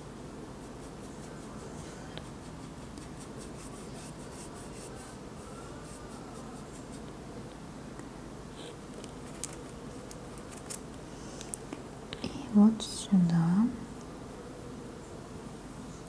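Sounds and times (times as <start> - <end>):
low room hum: 0.0 - 16.0
soft paintbrush strokes: 0.5 - 7.2.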